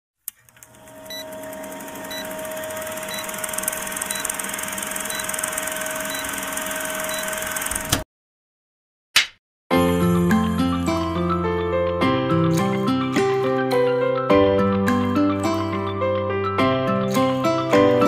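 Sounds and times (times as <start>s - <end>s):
film projector whirring: 0.3s - 8.0s.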